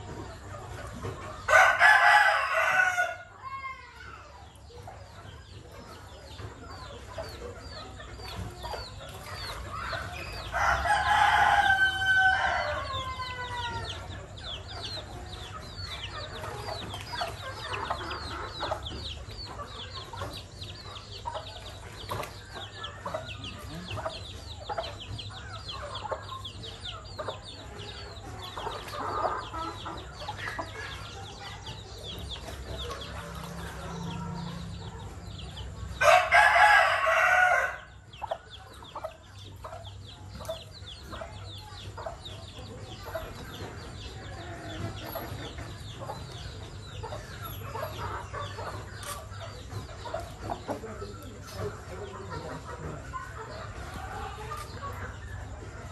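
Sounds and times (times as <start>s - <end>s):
hen clucking: 0.0s - 55.9s
rooster crowing: 1.5s - 3.3s, 10.6s - 14.0s, 36.0s - 37.9s.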